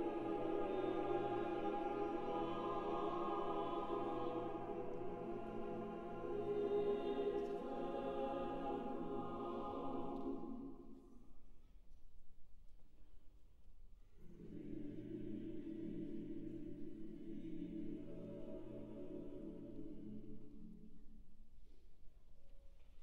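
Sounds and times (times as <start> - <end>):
choir holding a chord: 0.0 - 11.0, 14.2 - 20.8.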